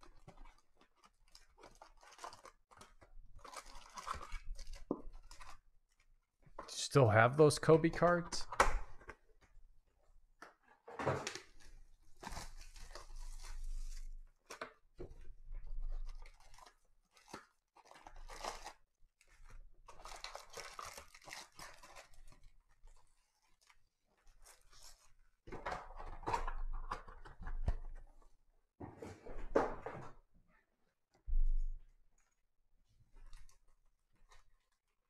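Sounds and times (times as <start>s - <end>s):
foil packs crinkling: 0.0s - 5.6s, 12.2s - 14.6s, 16.0s - 25.0s
cardboard rustling and tearing: 11.4s - 14.6s, 16.0s - 23.7s.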